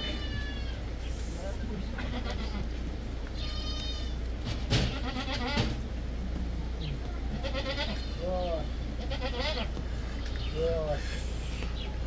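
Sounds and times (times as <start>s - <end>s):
goats bleating: 0.0s - 1.1s, 1.8s - 5.8s, 7.3s - 9.9s
sharp knock: 4.4s - 5.0s.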